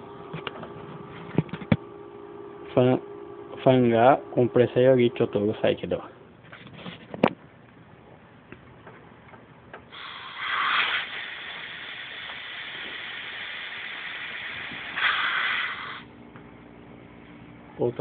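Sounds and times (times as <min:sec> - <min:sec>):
compressed air hissing: 0:09.9 - 0:16.1.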